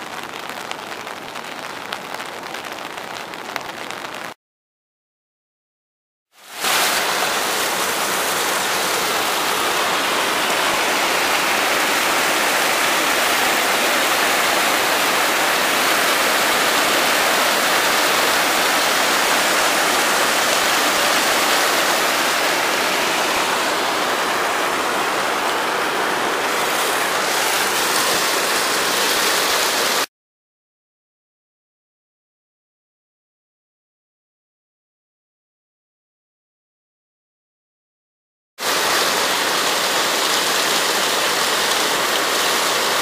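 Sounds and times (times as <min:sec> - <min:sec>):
river water rushing: 0:06.4 - 0:30.1, 0:38.6 - 0:43.0.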